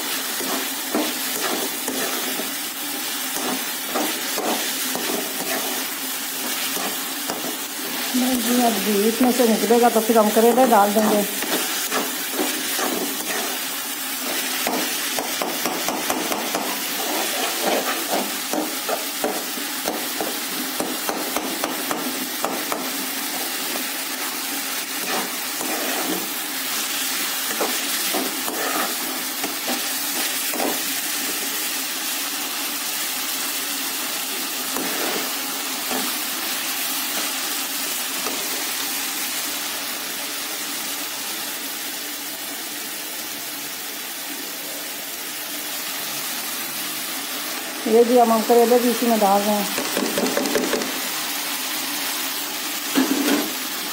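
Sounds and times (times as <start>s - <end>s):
food sizzling in a pan: 0.0s - 53.9s
metal spoon knocking and scraping pan: 3.4s - 5.8s, 11.1s - 13.6s, 14.6s - 22.9s, 49.7s - 51.0s.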